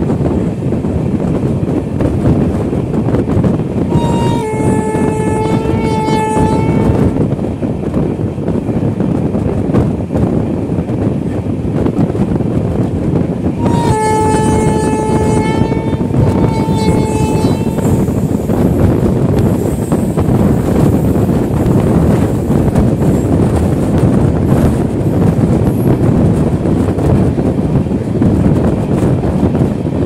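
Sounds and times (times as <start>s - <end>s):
train rumble and wind: 0.0s - 30.0s
train horn: 3.9s - 7.2s, 13.6s - 18.2s.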